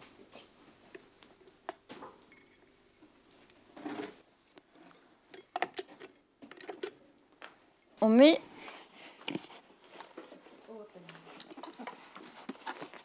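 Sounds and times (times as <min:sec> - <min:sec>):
rustling: 0:08.5 - 0:13.0.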